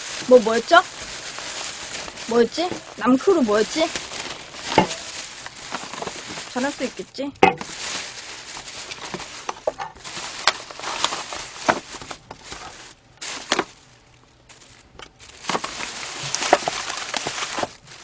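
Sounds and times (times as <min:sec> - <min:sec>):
plastic bag rustling: 0:00.0 - 0:18.0
plastic containers set on table: 0:00.1 - 0:06.8, 0:07.4 - 0:13.8.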